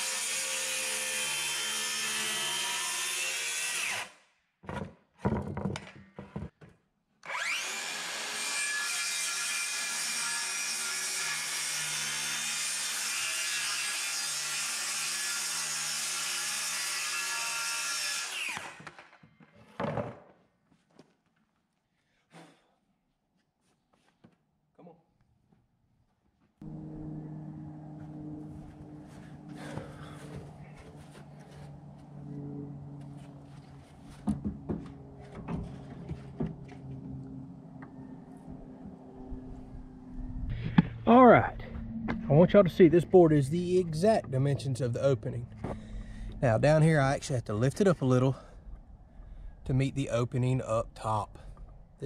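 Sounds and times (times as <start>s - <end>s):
circular saw cutting plywood: 0.0s - 4.2s, 7.2s - 19.1s
saw blade spinning down: 7.2s - 8.6s
steady low hum: 26.6s - 47.6s.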